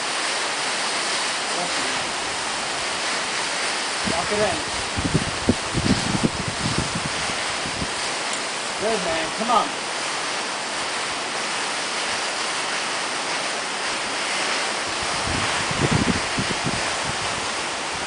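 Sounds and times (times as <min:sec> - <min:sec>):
steady outdoor rushing noise: 0:00.0 - 0:18.0
wind buffeting microphone: 0:01.9 - 0:08.9, 0:13.4 - 0:18.0.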